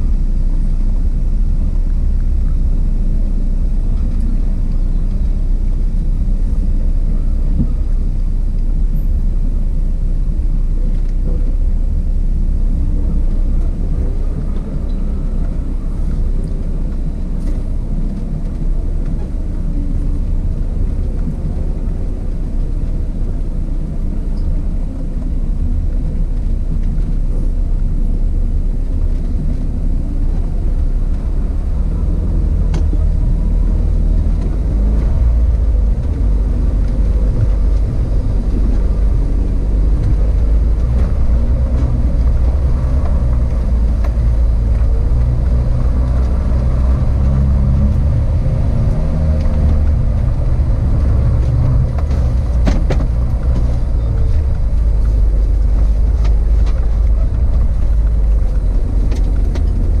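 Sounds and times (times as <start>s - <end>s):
car engine rumble: 0.0s - 60.0s
road noise: 0.0s - 60.0s.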